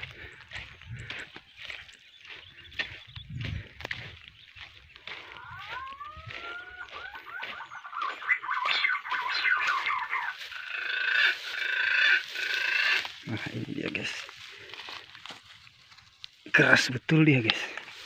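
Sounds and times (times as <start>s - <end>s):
birds whistling and chirping: 0.0s - 13.8s
footsteps through dry grass: 0.0s - 18.0s.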